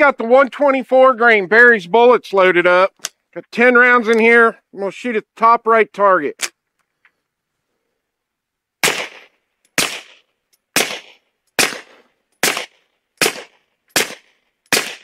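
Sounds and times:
suppressed pistol shots: 8.8 - 15.0.

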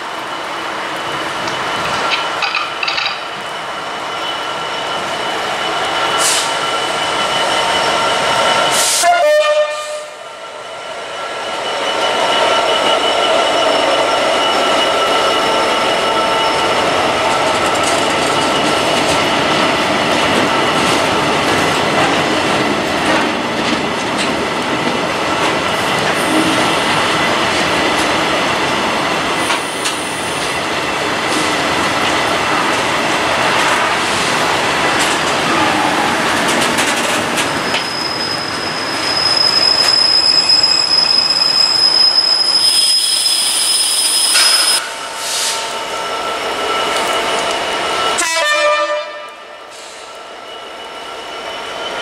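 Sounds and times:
freight train rumble and wheel clatter: 0.0 - 52.0
train horn blast: 8.9 - 10.2, 48.2 - 49.6.

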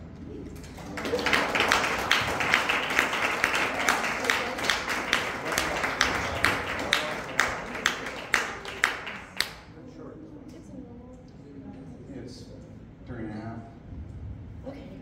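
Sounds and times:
audience applauding: 0.6 - 9.7
sharp claps close to microphone: 0.6 - 9.7.

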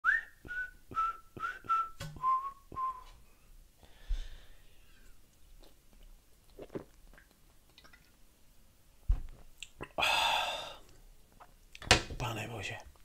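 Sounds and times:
breathy exhale: 3.8 - 5.1, 10.0 - 10.9
person gulping: 5.0 - 8.2, 9.6 - 11.6.

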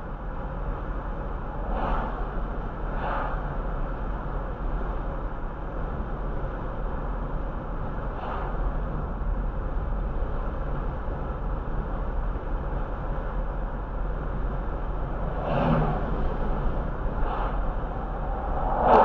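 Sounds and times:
car road noise from inside: 0.0 - 19.0.

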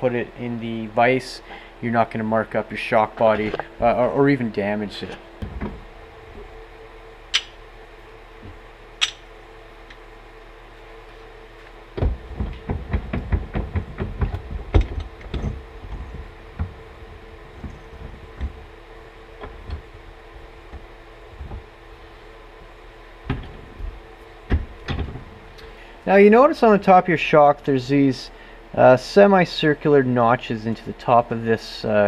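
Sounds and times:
clunks and knocks in a vise: 12.0 - 16.8.

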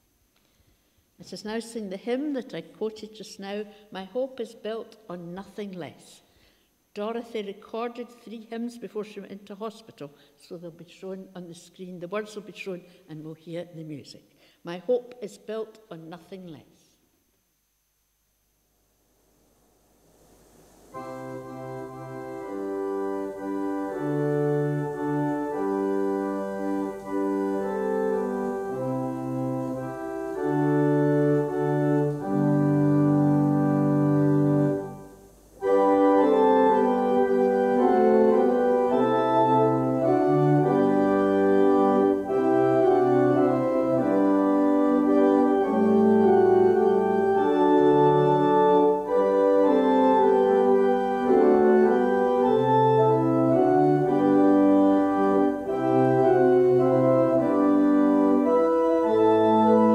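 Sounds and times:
church organ playing hymn: 20.9 - 59.9.

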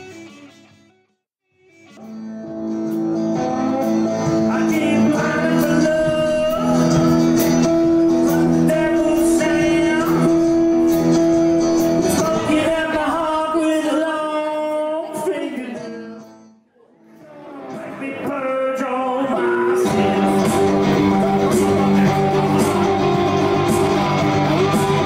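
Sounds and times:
drum kit: 1.8 - 13.2, 19.8 - 25.0
man singing: 3.1 - 16.4, 17.2 - 25.0.

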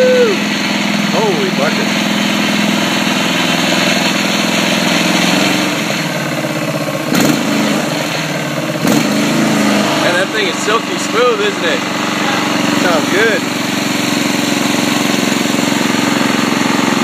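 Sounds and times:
lawn mower engine running: 0.0 - 17.0.

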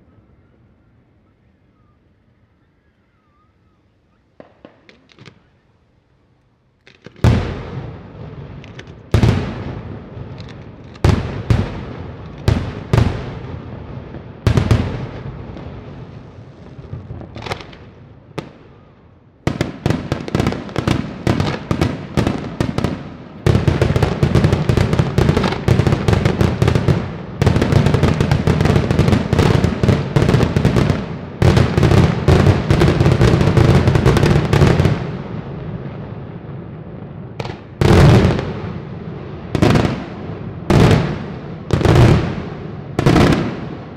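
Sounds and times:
rapid barrage of firework bangs: 6.9 - 18.6, 19.4 - 36.1, 37.3 - 43.9.

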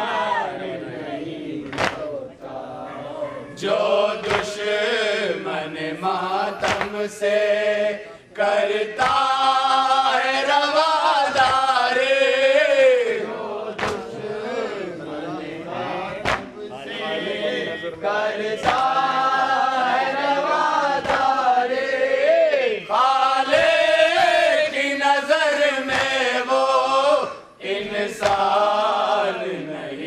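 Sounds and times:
men chanting into microphone: 0.0 - 30.0
sharp knocks: 4.2 - 4.6, 6.6 - 7.0, 16.1 - 16.5, 28.2 - 28.4.

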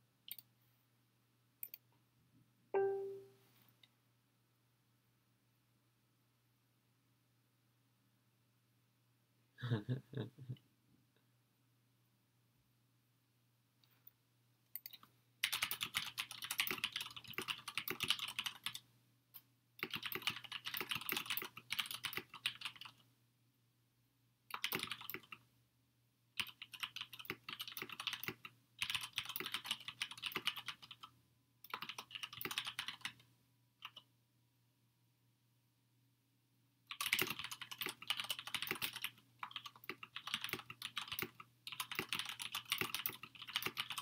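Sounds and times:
typing on computer keyboard: 14.7 - 18.8, 19.8 - 23.0, 24.5 - 25.4, 26.4 - 34.1, 36.9 - 44.0.

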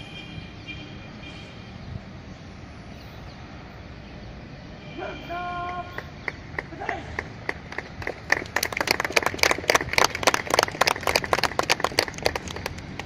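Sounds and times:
people clapping: 5.6 - 13.0.

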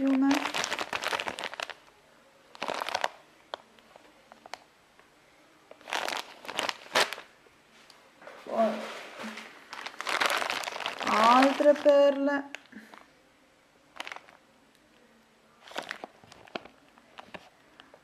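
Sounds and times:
plastic bags crinkling: 0.0 - 1.9, 2.5 - 3.2, 5.8 - 7.3, 9.2 - 13.0, 13.9 - 14.4, 15.6 - 17.5.

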